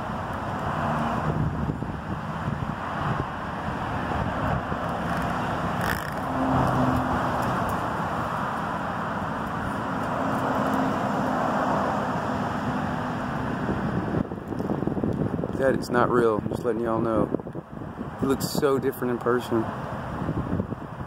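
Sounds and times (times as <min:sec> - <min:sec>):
passing vehicle engine: 0:00.0 - 0:15.5.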